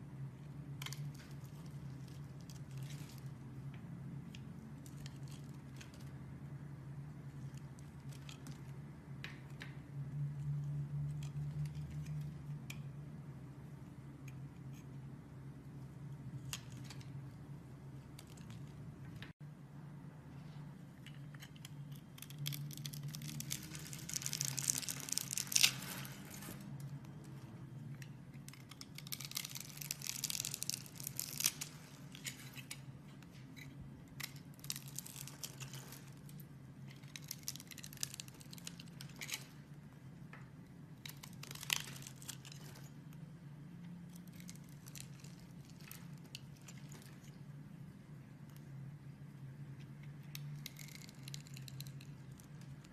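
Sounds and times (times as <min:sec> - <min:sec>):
blade crunching through soap: 0:28.5 - 0:32.9, 0:41.0 - 0:42.9, 0:50.3 - 0:52.7.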